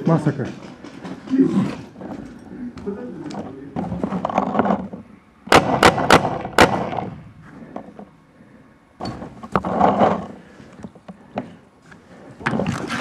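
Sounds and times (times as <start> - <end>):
paintball marker shots: 5.5 - 7.1.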